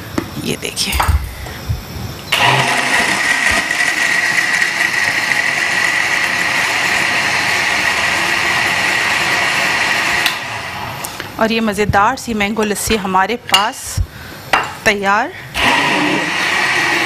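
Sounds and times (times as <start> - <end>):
blender churning liquid: 2.3 - 10.9, 15.6 - 17.0
blender motor whine: 2.3 - 11.1, 15.6 - 17.0.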